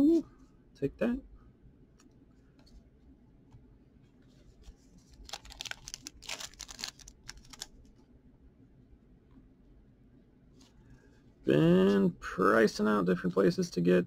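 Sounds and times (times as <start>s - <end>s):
cards rustling and clicking: 4.5s - 8.0s.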